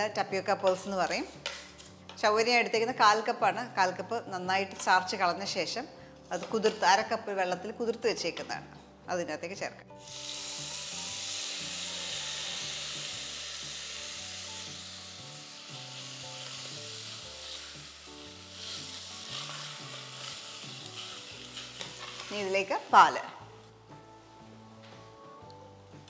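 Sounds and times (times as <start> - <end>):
sago sizzling in hot ghee: 9.9 - 24.5.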